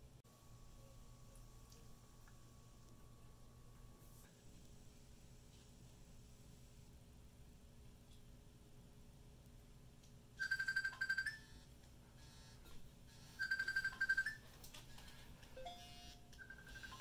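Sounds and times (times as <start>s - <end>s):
mobile phone ringtone: 10.4s - 11.6s, 12.2s - 14.5s, 15.6s - 17.0s.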